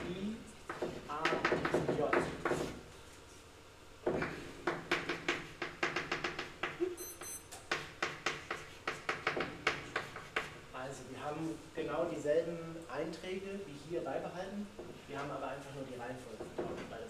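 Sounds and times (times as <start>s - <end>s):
short high electronic beep: 7.0s - 7.5s.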